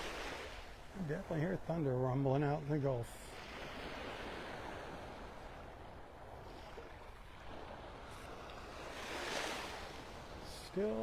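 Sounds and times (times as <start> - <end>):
small waves washing onto sand: 0.0 - 11.0.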